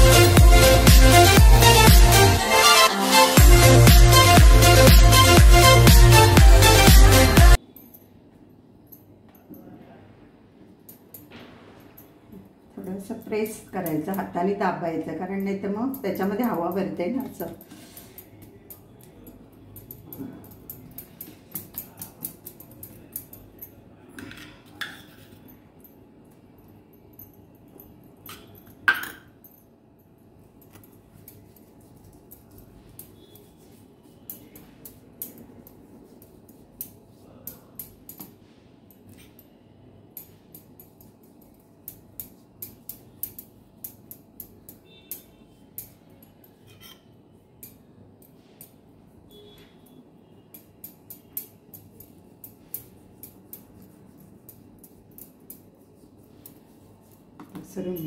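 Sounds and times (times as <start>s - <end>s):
kitchen utensils clinking: 24.2s - 25.5s, 28.3s - 29.4s.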